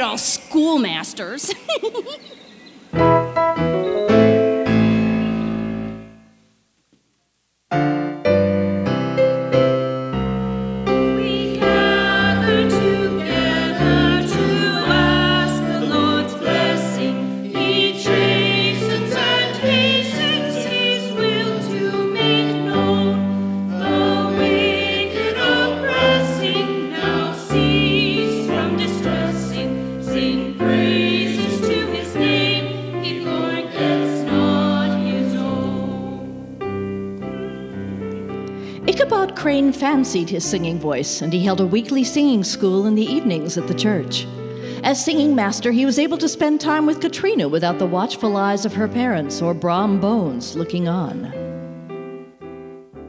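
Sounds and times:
music: 2.9s - 53.0s
electronic keyboard music: 3.0s - 6.4s
voices singing: 11.0s - 38.1s.

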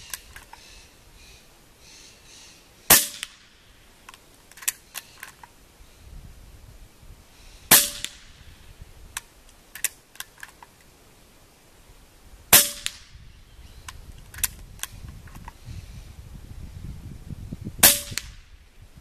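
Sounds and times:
air rifle shot: 2.9s - 3.6s, 7.7s - 8.4s, 12.5s - 13.2s, 17.8s - 18.5s.

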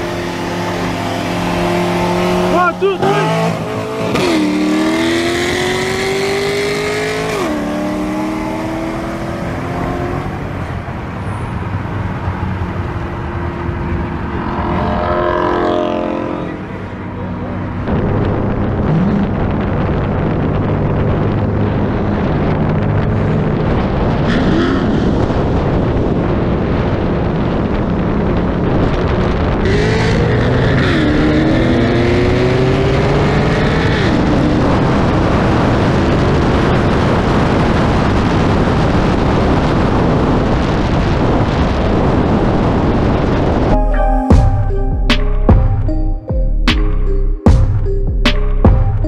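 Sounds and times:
car engines running: 0.0s - 43.8s
wind rushing over camera: 17.8s - 43.8s.

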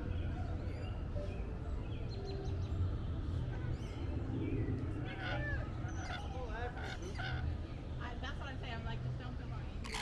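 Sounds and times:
lorikeets chattering: 5.0s - 7.7s.

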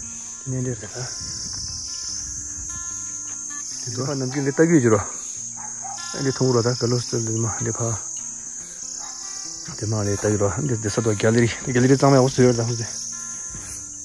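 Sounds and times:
insects chirring: 0.0s - 14.0s
person's voice: 9.7s - 13.0s.

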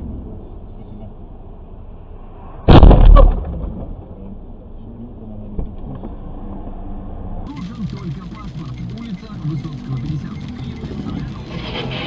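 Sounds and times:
rumble: 0.0s - 12.0s
vehicle collision crash: 2.7s - 4.2s.

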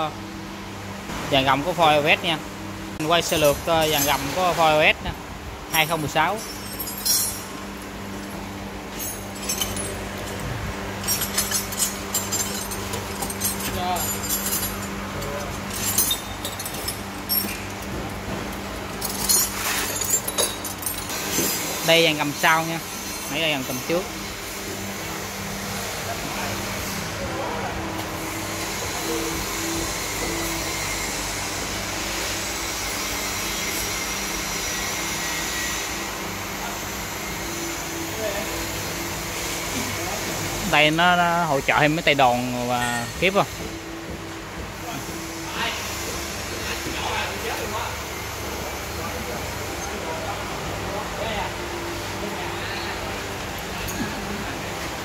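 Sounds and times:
light metallic clinks: 5.7s - 7.6s, 8.9s - 10.4s, 11.0s - 17.9s.

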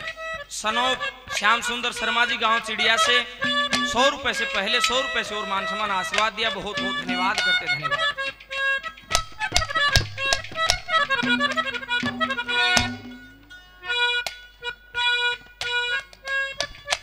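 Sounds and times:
harmonium melody: 0.0s - 17.0s
sharp drum strikes: 3.4s - 4.2s, 9.2s - 13.5s.

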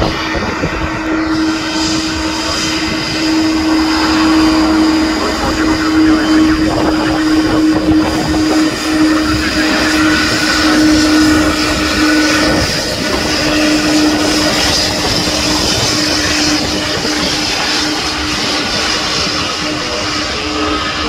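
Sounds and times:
jet engines whining: 0.0s - 21.0s.

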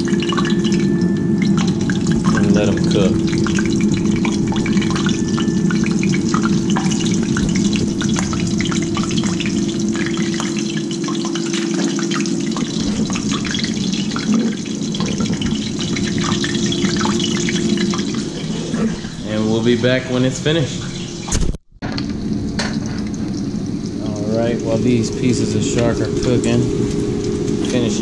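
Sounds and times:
fish sizzling in hot oil: 0.0s - 18.6s, 22.0s - 28.0s
steady hum: 0.0s - 28.0s.

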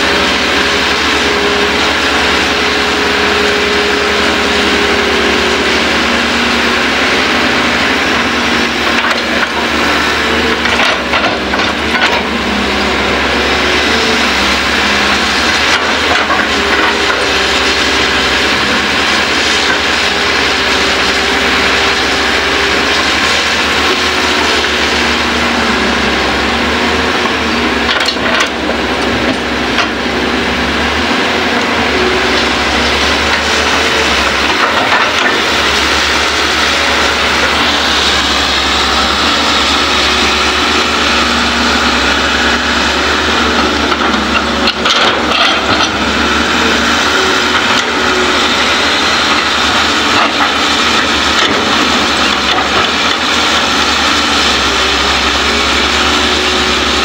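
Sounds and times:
excavator diesel engines running: 0.0s - 57.0s.

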